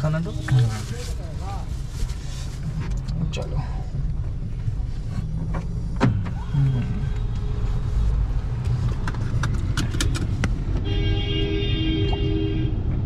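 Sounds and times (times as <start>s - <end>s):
car rumble from inside: 0.0s - 11.4s
vehicle horn: 10.8s - 12.9s.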